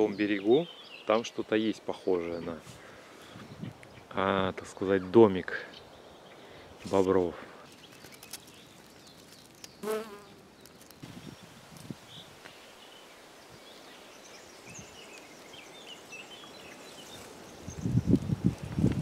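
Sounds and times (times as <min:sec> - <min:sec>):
bee buzzing: 0:09.8 - 0:10.4.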